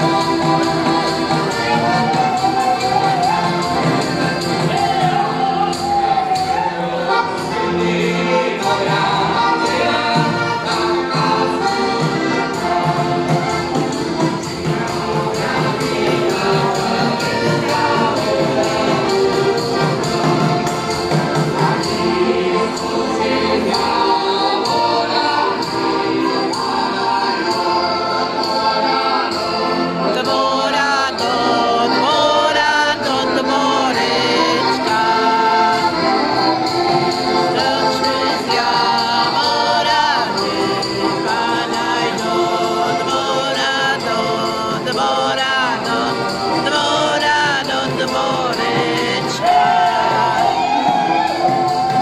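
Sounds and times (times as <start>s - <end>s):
button accordions playing folk tune: 0.0s - 52.0s
male chorus singing: 0.0s - 52.0s.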